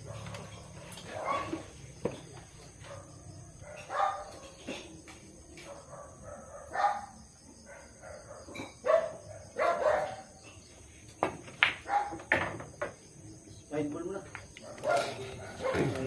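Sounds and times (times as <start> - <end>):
dog barking: 1.1 - 1.7, 2.8 - 4.6, 5.6 - 10.4, 11.9 - 12.2, 14.6 - 16.0.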